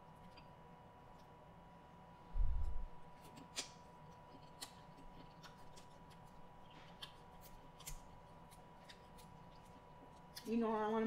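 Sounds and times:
chewing shrimp: 0:03.2 - 0:10.5.

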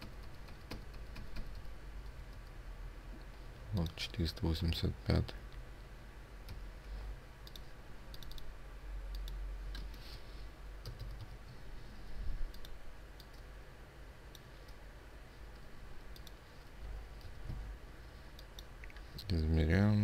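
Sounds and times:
low steady hum: 0:00.0 - 0:20.0
computer mouse clicks: 0:07.4 - 0:08.5, 0:09.1 - 0:10.0, 0:12.5 - 0:13.5, 0:15.5 - 0:16.4, 0:18.3 - 0:19.0.

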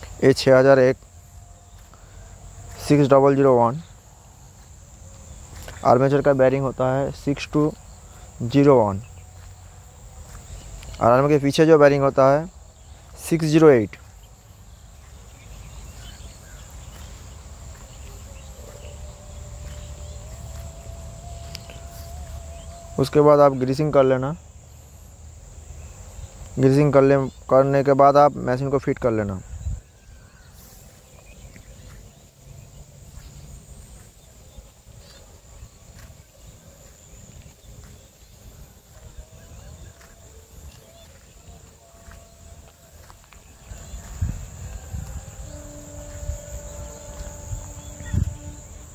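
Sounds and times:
low hum: 0:14.1 - 0:23.7
high-pitched whine: 0:14.5 - 0:27.4, 0:30.2 - 0:48.9.

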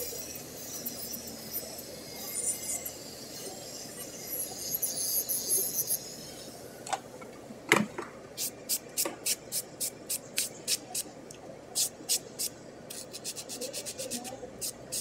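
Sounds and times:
nail file stroking fingernails: 0:11.8 - 0:15.0.

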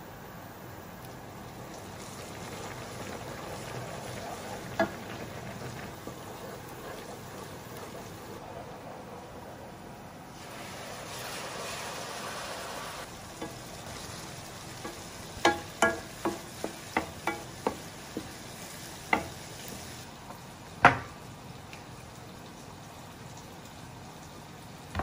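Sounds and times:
liquid sizzling in hot frying pan: 0:00.5 - 0:25.0
wooden spoon knocking pan: 0:14.8 - 0:18.4, 0:19.1 - 0:19.4.

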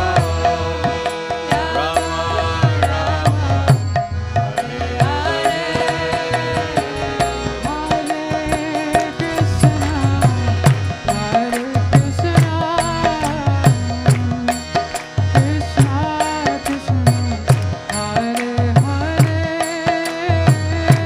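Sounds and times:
woman singing: 0:00.0 - 0:03.9
drum beating steady rhythm: 0:00.0 - 0:21.0
harmonium chords: 0:00.0 - 0:21.0.

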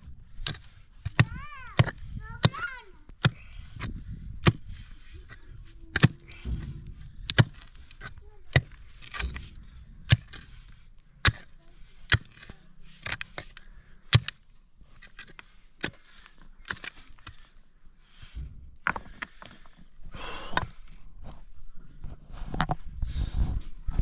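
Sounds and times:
pick striking stony soil: 0:00.3 - 0:17.6.

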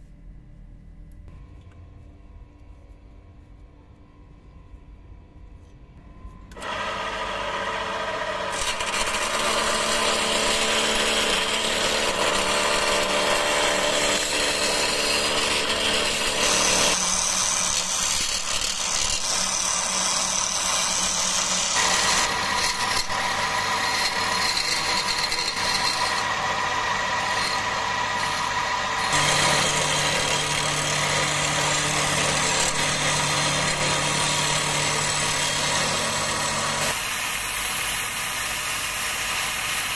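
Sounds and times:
wood lathe motor hum: 0:06.6 - 0:39.9
turning tool scraping wood: 0:08.5 - 0:37.1.

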